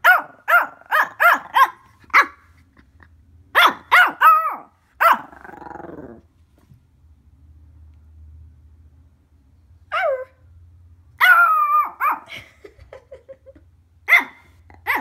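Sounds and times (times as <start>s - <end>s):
puppy yapping: 0.0s - 2.4s, 3.6s - 5.4s, 11.2s - 12.3s, 14.1s - 15.0s
puppy growling: 4.2s - 6.3s.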